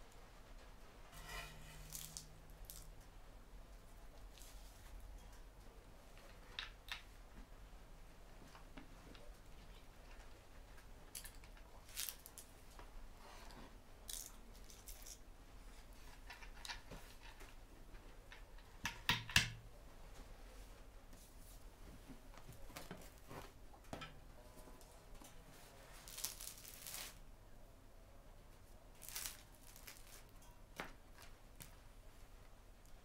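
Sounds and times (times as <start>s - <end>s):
tableware clicks and scrapes: 1.1s - 2.3s
flatbread tearing: 1.2s - 2.9s, 26.0s - 27.2s, 29.0s - 30.3s.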